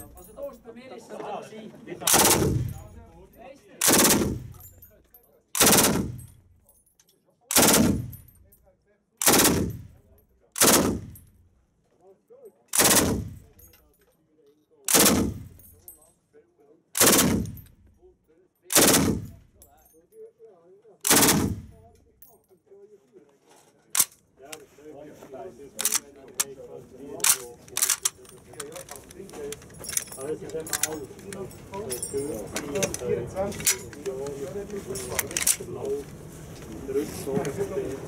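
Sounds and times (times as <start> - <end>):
machine gun bursts echoing: 2.1 - 2.8, 3.8 - 4.5, 5.6 - 6.2, 7.5 - 8.2, 9.2 - 9.9, 10.6 - 11.2, 12.8 - 13.4, 14.9 - 15.6, 17.0 - 17.6, 18.7 - 19.3, 21.1 - 21.8.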